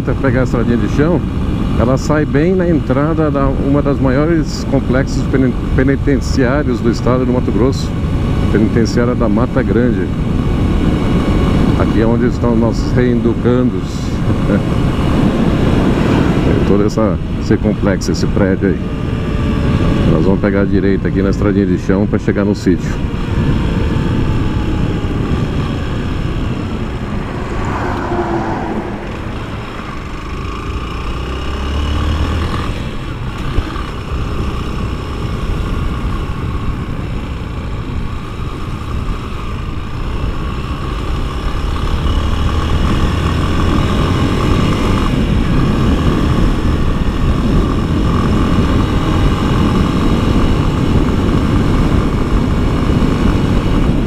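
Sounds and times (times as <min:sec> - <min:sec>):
wind rumble on microphone: 0:00.0 - 0:18.1, 0:22.8 - 0:31.6, 0:42.4 - 0:54.0
motorcycle engine: 0:00.0 - 0:54.0.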